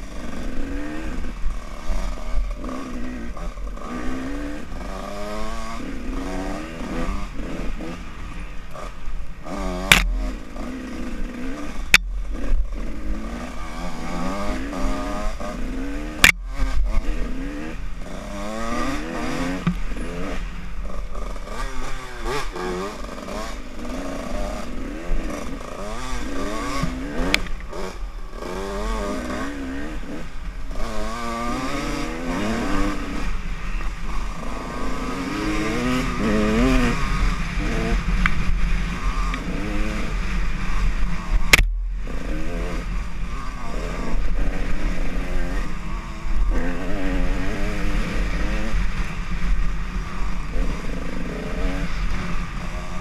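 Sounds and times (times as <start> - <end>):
dirt bike engine revving: 0.0 - 53.0
sharp click: 9.9 - 10.2, 16.2 - 16.4, 41.5 - 41.7.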